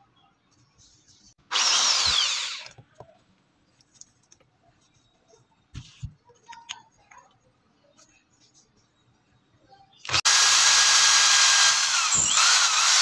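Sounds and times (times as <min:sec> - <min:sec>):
electric drill winding down: 0:01.5 - 0:02.7, 0:10.1 - 0:13.0.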